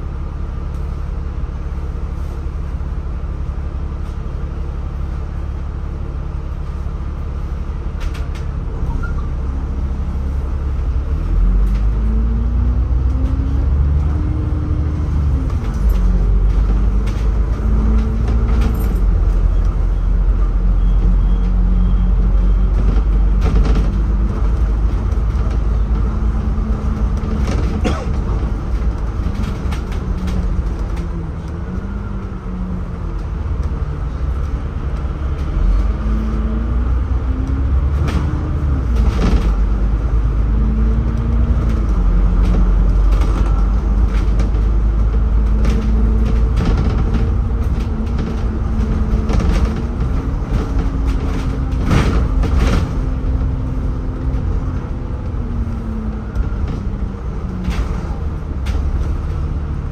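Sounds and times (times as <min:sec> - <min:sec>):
bus engine rumble: 0:00.0 - 0:59.9
rattles and clicks: 0:14.8 - 0:20.5, 0:22.7 - 0:36.4, 0:37.4 - 0:59.9.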